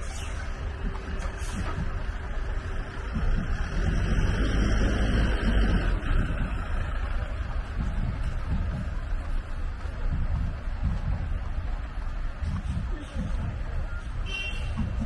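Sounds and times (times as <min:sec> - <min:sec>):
truck passing close by: 0:00.0 - 0:08.8
road traffic noise: 0:00.0 - 0:15.0.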